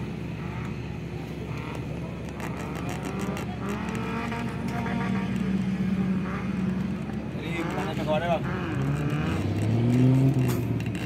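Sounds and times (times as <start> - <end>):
off-road vehicle engine droning: 0.0 - 11.0.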